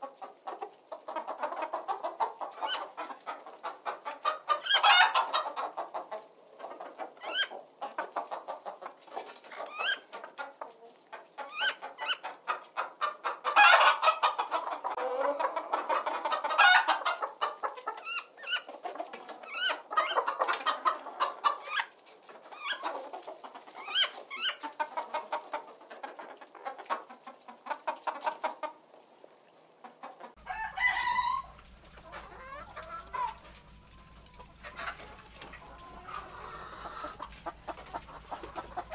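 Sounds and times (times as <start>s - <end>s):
chickens clucking: 0.0s - 38.9s.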